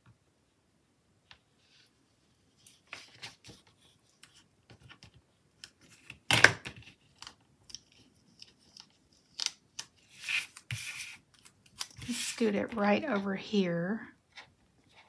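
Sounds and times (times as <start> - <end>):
paper rustling: 1.7 - 13.3.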